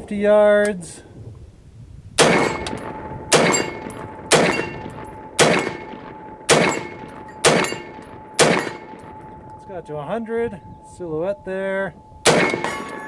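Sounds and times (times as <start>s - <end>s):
rifle shots echoing: 2.2s - 9.6s, 12.2s - 13.0s.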